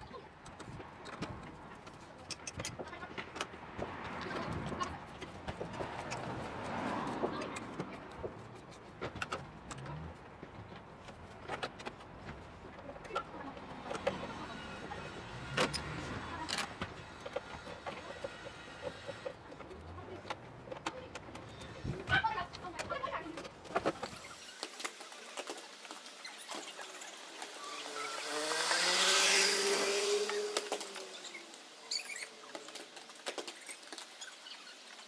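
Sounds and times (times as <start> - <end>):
tools clicking and knocking on parts: 0.4 - 14.3, 15.5 - 21.9.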